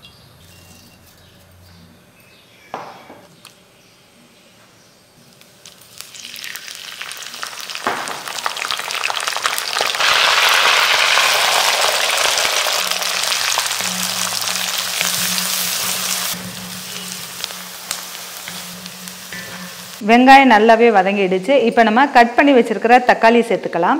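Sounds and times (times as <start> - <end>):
oil sizzling in a pan: 5.6 - 20.0.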